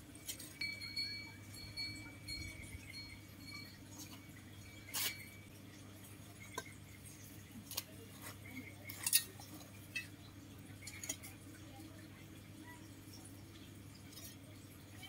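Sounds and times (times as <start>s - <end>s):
light clinks and ticks: 0.2s - 7.0s.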